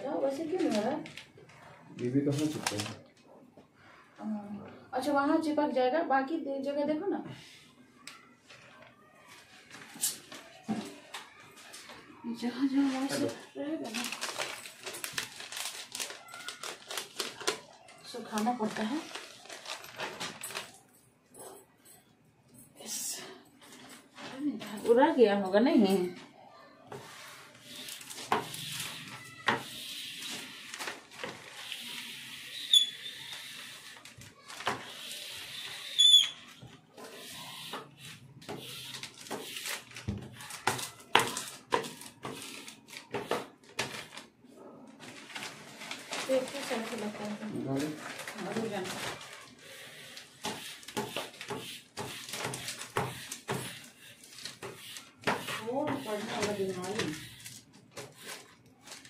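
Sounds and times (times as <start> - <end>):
squeegee scraping vinyl sheet: 26.9 - 44.2, 45.4 - 59.0.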